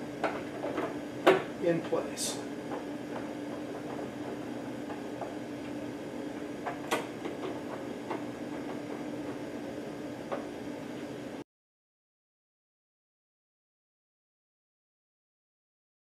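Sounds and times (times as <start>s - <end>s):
steady low hum: 0.0s - 11.4s.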